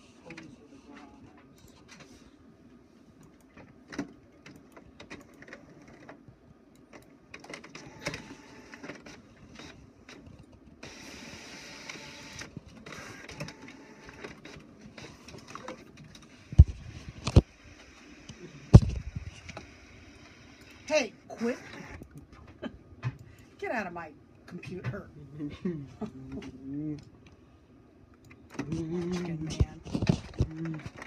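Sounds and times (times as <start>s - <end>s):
printer clicks and whirs: 3.2s - 22.3s.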